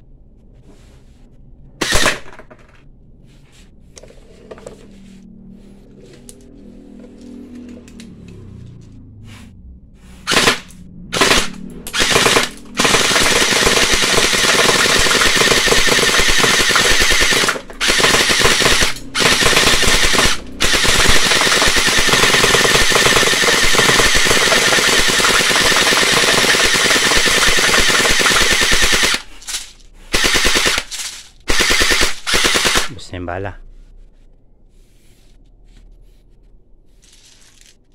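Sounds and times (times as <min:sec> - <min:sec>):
pellet gun rapid fire: 0:01.8 - 0:02.5, 0:10.3 - 0:29.3, 0:30.1 - 0:33.0.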